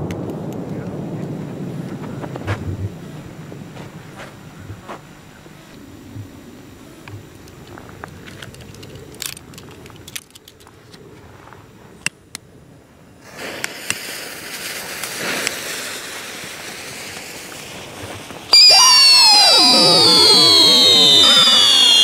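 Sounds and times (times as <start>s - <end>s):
fuse hissing and crackling: 0.0s - 12.0s, 13.2s - 22.0s
whistling firework scream: 18.5s - 22.0s.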